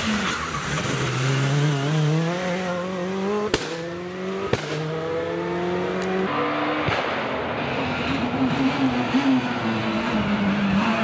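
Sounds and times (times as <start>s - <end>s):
rally car engine accelerating: 0.0s - 11.0s
sharp cracks: 3.5s - 4.9s.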